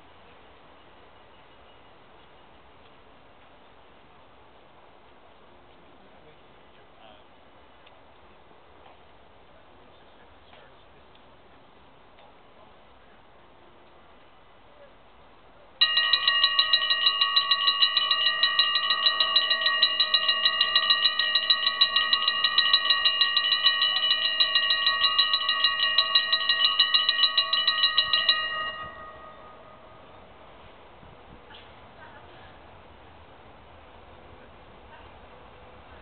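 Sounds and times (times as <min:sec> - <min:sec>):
level crossing bells ringing: 0:15.8 - 0:30.5.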